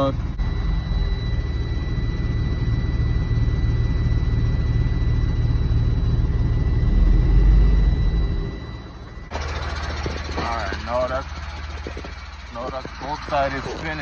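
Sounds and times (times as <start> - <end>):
truck engine low rumble: 0.0 - 14.0.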